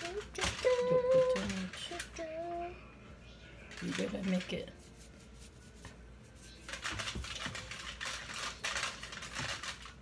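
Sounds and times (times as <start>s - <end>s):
sprinkles rattling in shaker bottle: 3.7s - 10.0s.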